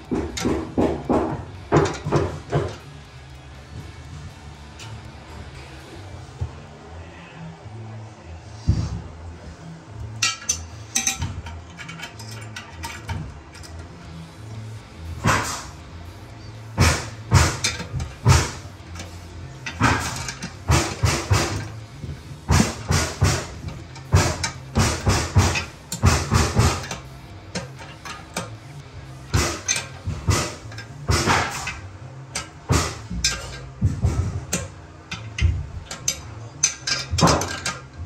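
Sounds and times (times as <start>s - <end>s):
wrench clicking on metal nuts: 10.2s - 13.9s, 29.3s - 33.7s, 34.4s - 38.0s.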